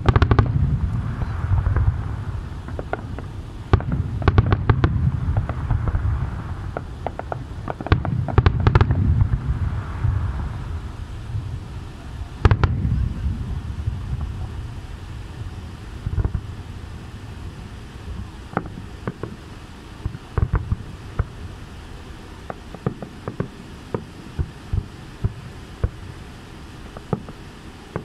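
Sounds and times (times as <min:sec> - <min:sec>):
firework boom: 0:00.0 - 0:19.4
wind on microphone: 0:00.0 - 0:19.4
firework cracks and pops: 0:00.0 - 0:28.0.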